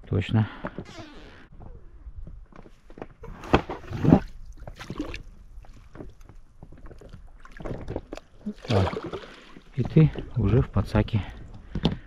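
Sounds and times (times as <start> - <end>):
water splashing: 3.8 - 6.1, 7.0 - 10.4.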